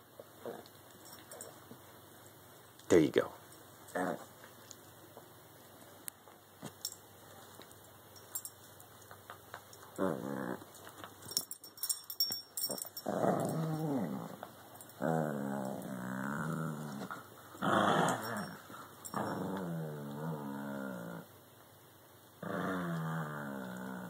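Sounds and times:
dogs play-growling: 0.4 - 1.6, 3.9 - 4.3, 9.9 - 11.4, 12.6 - 21.3, 22.4 - 24.0.

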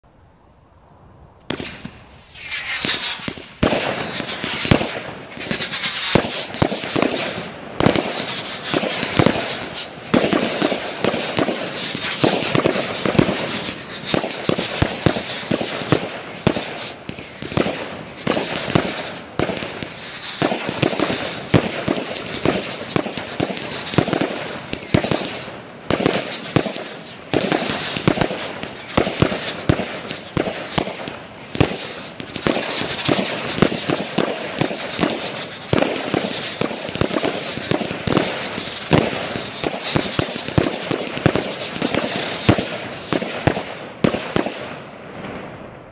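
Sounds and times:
firework barrage launches and bursts: 1.4 - 45.9
high wavering whistle: 2.2 - 21.1.

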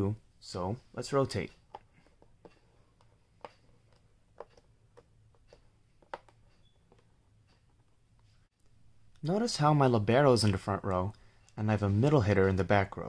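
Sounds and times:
faint taps and clicks of markers: 1.4 - 8.4.

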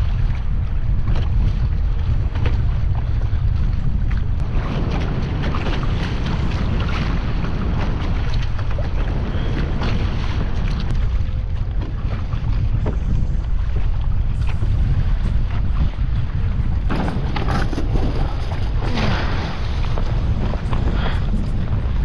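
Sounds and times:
water splashing against kayak: 0.0 - 22.0
wind buffeting microphone: 0.0 - 22.0.

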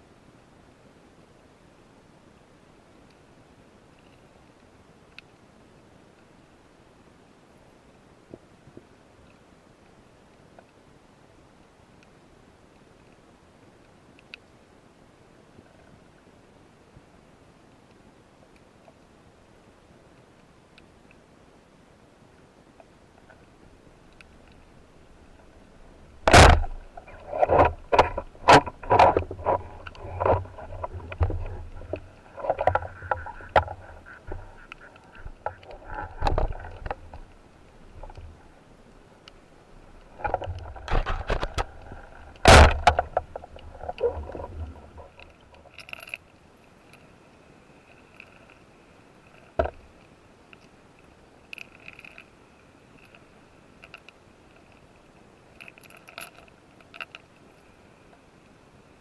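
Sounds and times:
faint hiss: 0.0 - 59.0
sharp crack underwater: 26.2 - 37.3, 40.1 - 46.2
underwater gear knocking and clicking: 26.2 - 37.3, 40.1 - 46.2.

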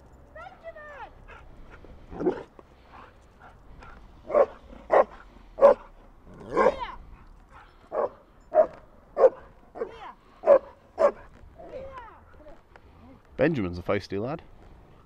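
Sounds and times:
dog barking: 4.3 - 5.9, 6.5 - 6.8, 7.9 - 11.3.

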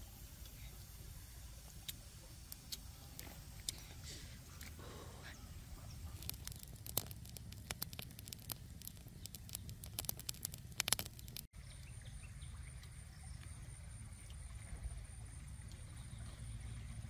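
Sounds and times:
wood fire crackling and popping: 5.6 - 11.5.

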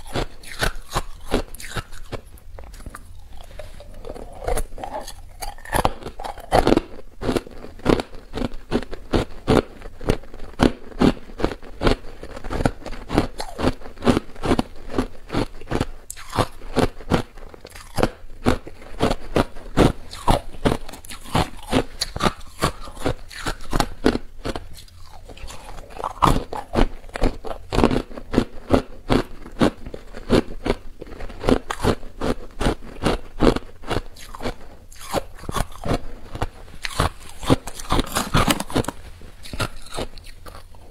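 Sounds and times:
person chewing ice crunches: 0.0 - 40.9.

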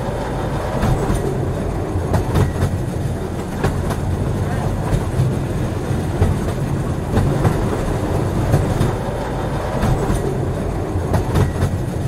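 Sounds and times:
train rumbling on track: 0.0 - 12.0
wheels clicking over rail joints: 0.0 - 12.0.

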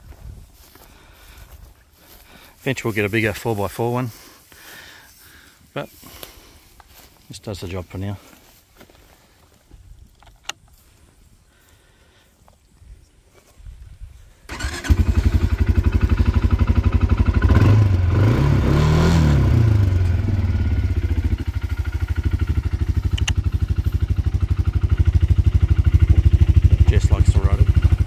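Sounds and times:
quad bike engine starting and idling: 14.5 - 28.0.

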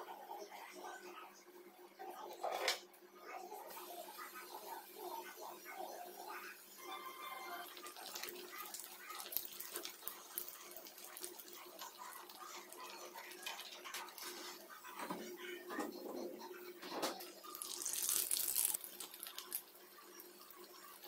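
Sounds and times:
bread sizzling in hot oil: 3.7 - 14.9, 17.3 - 21.0.

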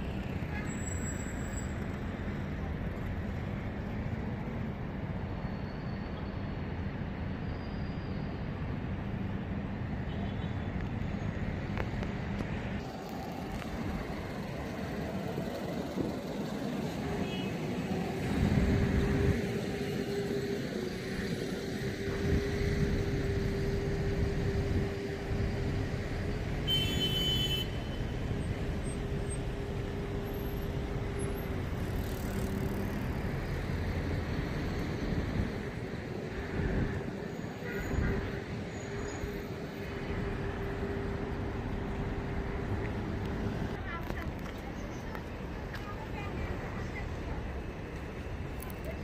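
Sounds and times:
brief high squeal: 7.4 - 8.4
cars passing: 10.7 - 49.0.

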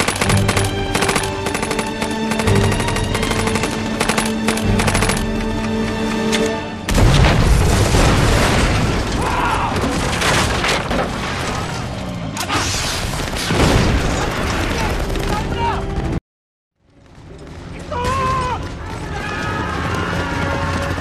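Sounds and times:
heavy explosion: 6.9 - 11.8, 12.6 - 15.0
deep rumble of debris: 6.9 - 16.2.

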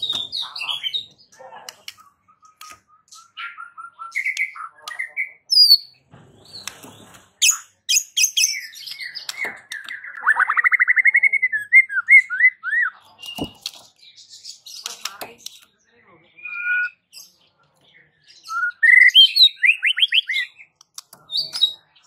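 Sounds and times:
bird singing whistled notes: 7.4 - 13.6, 16.4 - 17.4, 18.3 - 20.7.

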